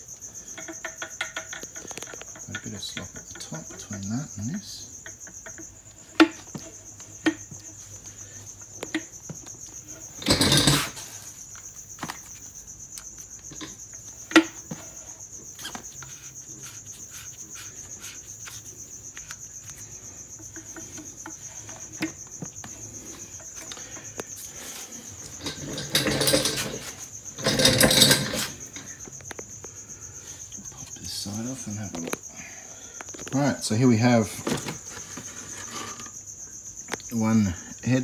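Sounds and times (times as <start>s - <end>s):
cricket chirping: 0.0s - 38.0s
metal rattle: 10.0s - 11.2s, 24.6s - 28.9s
metal parts clicking and knocking: 10.2s - 11.0s, 25.2s - 28.8s.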